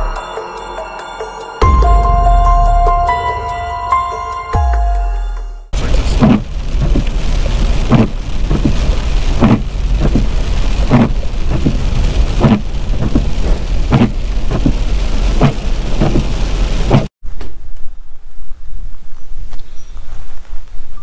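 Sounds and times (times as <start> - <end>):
low road rumble: 1.6 - 21.0
rain drumming on truck: 5.7 - 17.1
windshield wipers thumping: 5.7 - 17.1.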